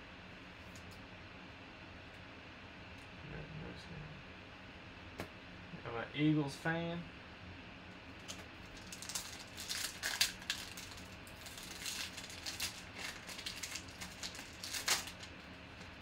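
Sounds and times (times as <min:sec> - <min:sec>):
plastic wrapper crinkling and tearing: 0:08.2 - 0:15.9.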